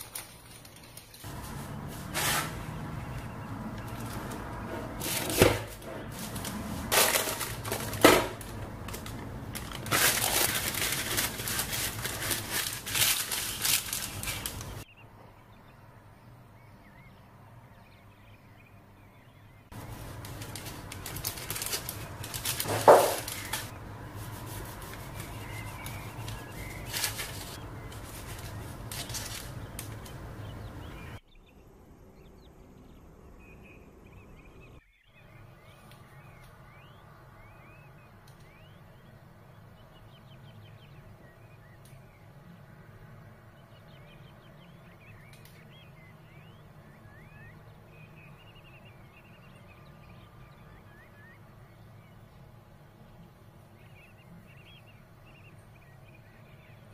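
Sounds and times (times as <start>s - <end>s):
baking paper crinkling: 0.0s - 14.8s, 19.7s - 31.0s.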